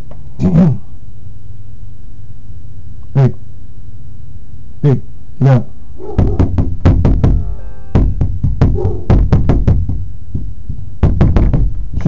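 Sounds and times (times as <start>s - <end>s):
knocking on glass door: 6.1s - 11.9s
brief ringing tone: 7.4s - 8.0s.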